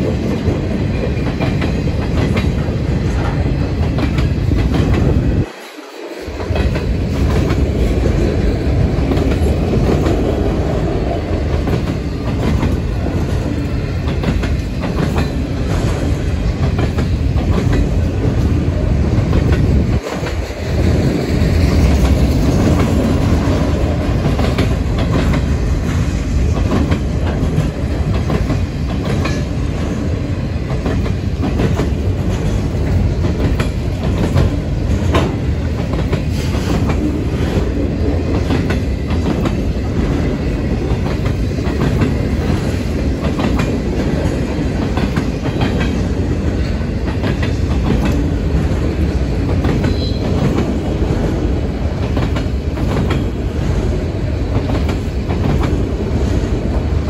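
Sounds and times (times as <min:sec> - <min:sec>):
freight train rumbling past: 0:00.0 - 0:57.0
wheels clicking over rail joints: 0:06.4 - 0:51.2.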